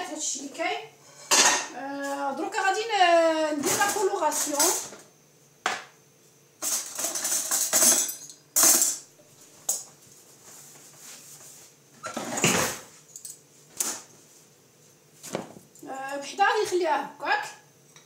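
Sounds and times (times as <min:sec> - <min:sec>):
metal bowl and utensils clattering: 0:01.1 - 0:01.7, 0:06.6 - 0:09.0.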